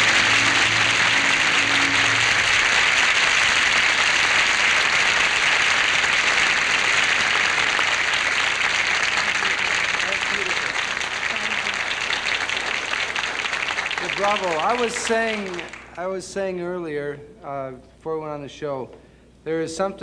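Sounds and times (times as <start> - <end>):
orchestra held chord: 0.0 - 4.9
audience applauding: 0.0 - 16.0.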